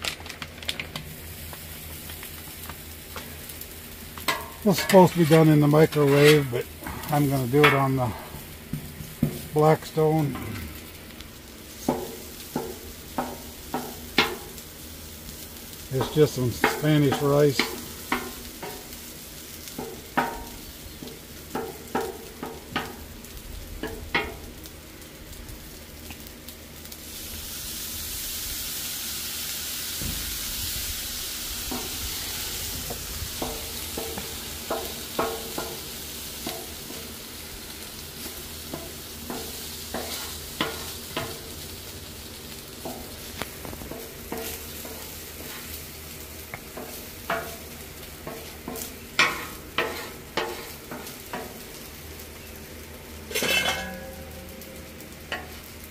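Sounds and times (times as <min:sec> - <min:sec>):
rice sizzling on griddle: 0:00.0 - 0:55.9
spatula tapping and scraping griddle: 0:04.2 - 0:10.6, 0:11.7 - 0:14.6, 0:15.3 - 0:23.1, 0:23.8 - 0:24.5, 0:31.6 - 0:52.0, 0:53.2 - 0:54.6, 0:55.3 - 0:55.7.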